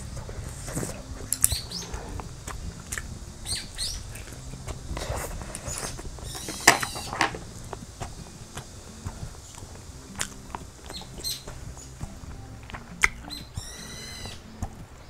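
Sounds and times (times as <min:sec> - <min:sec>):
chewing and lip-smacking: 0:00.2 - 0:15.0.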